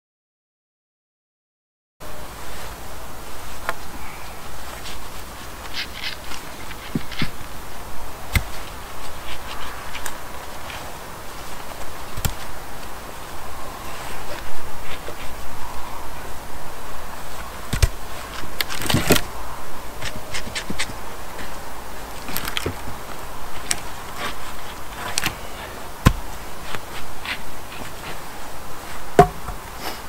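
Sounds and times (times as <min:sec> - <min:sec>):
wooden poles knocking and scraping: 0:28.9 - 0:29.8.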